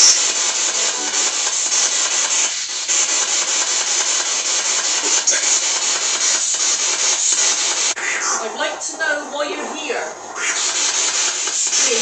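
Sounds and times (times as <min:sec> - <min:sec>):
radio static hiss: 0:00.0 - 0:12.0
voice-like sound: 0:08.0 - 0:10.6.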